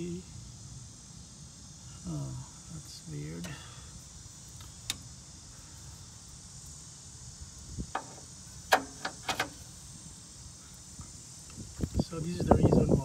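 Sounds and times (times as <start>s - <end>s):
insect chirring: 0.0s - 13.0s
sharp clicks and knocks: 7.9s - 9.6s.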